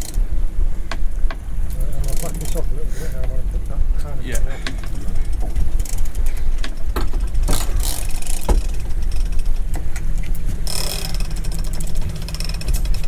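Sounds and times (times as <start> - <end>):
outboard engine idling: 0.0 - 13.0
fishing tackle clicks and knocks: 4.4 - 13.0.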